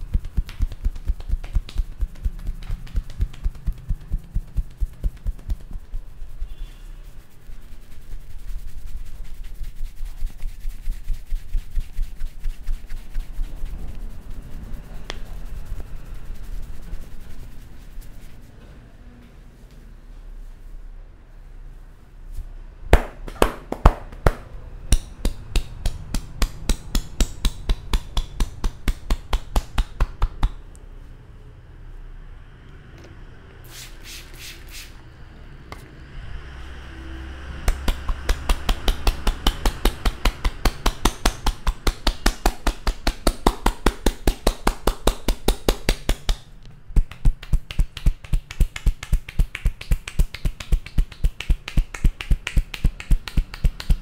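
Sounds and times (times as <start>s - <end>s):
cupped hands clapping on scalp: 0.0s - 6.2s, 22.9s - 30.6s, 37.6s - 54.0s.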